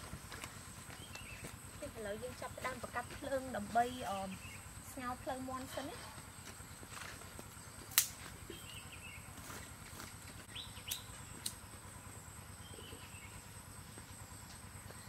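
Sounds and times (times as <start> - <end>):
sharp snap: 7.9 - 8.2
faint bird chirps: 8.5 - 9.3, 12.6 - 13.6.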